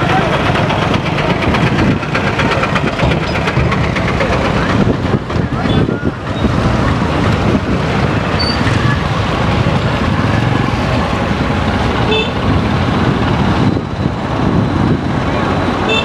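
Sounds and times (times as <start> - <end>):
road traffic: 0.0 - 16.0
car horn toot: 12.1 - 12.4.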